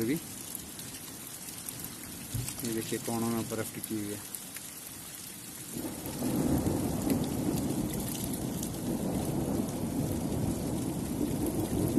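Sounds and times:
rain patter: 0.0 - 11.9
thunder rumbling: 5.7 - 11.9.

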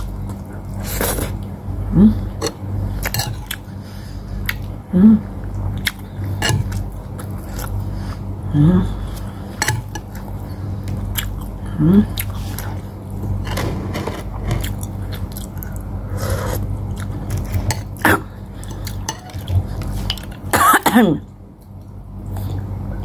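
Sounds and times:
low hum: 0.0 - 23.0
person clearing throat: 20.6 - 21.2.

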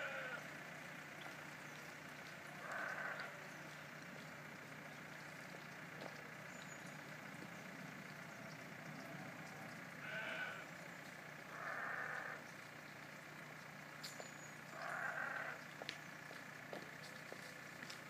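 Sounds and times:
livestock calls: 0.0 - 0.6, 2.4 - 3.8, 8.4 - 12.5, 14.7 - 15.8.

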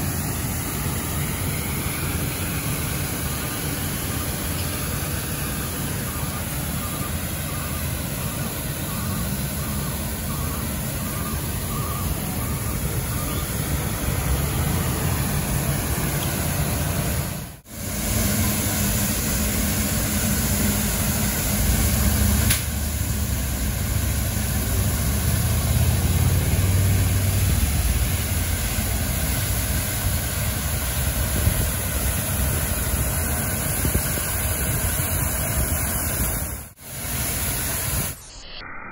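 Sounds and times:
rotating brooms on road: 0.0 - 38.2
street sweeper engine running: 0.0 - 38.2
back-up beeper: 1.1 - 15.4.

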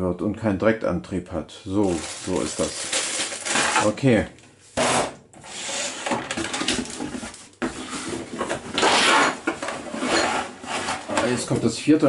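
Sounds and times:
plastic plates scraping on wood: 4.8 - 11.6.

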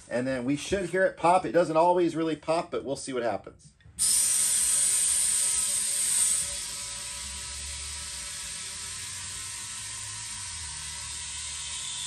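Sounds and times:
compressed air hissing into tire: 4.0 - 12.0.

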